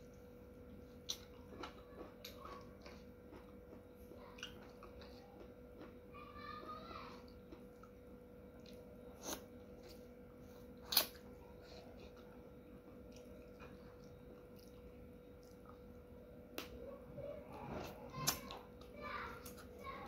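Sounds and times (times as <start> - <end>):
chewing and mouth sounds: 1.0 - 6.0.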